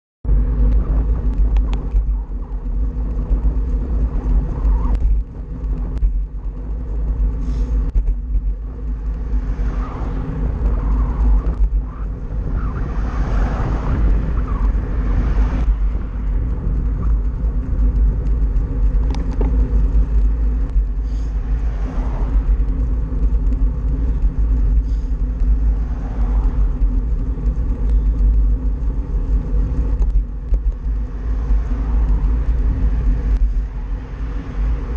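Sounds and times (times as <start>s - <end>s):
wind buffeting microphone: 0.2s - 34.9s
car passing: 8.8s - 30.0s, 30.8s - 34.9s.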